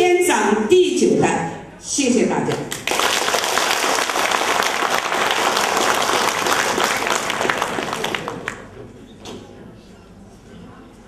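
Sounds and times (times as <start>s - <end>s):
audience applauding: 2.7s - 8.8s.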